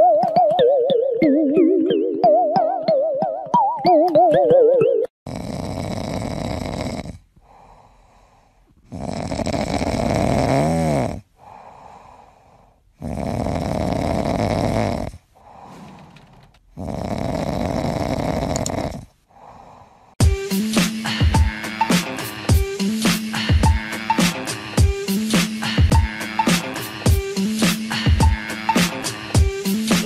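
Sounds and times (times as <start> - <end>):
cat snoring: 5.3 - 20.2
cat breathing: 7.3 - 10.1, 11.3 - 13.2, 15.0 - 20.2.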